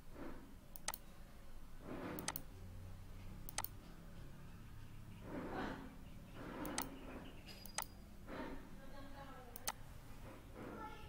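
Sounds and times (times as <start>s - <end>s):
computer mouse button clicks: 2.2s - 2.4s, 3.5s - 3.7s.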